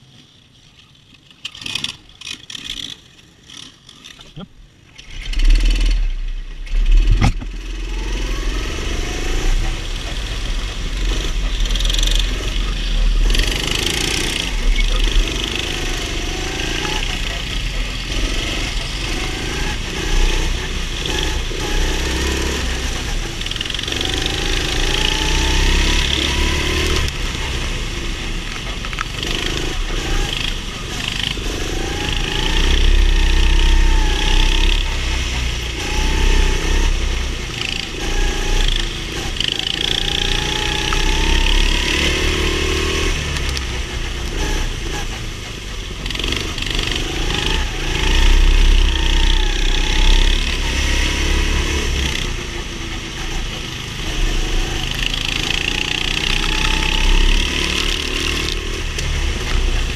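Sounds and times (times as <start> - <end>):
go-kart engine revving: 1.1 - 59.9.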